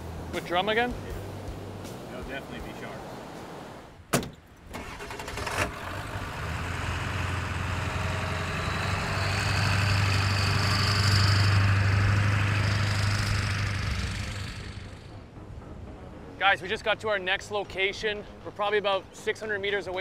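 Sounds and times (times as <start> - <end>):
pickup truck engine passing: 4.7 - 15.2.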